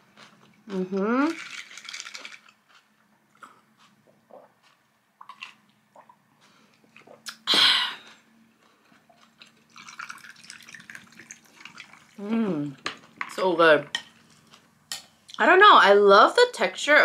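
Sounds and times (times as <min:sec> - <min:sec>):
sparkling water pouring and fizzing: 0:09.7 - 0:12.3.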